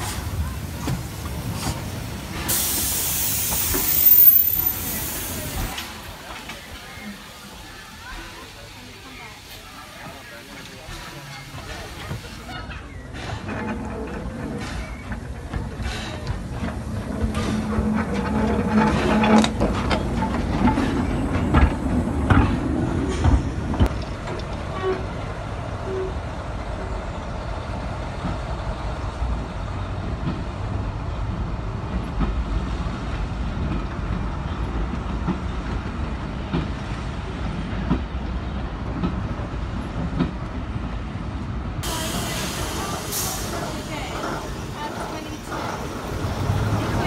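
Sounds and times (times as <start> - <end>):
wheels clanking over rail joints: 0.0 - 25.3, 41.8 - 47.0
train coaches rumbling: 0.0 - 47.0.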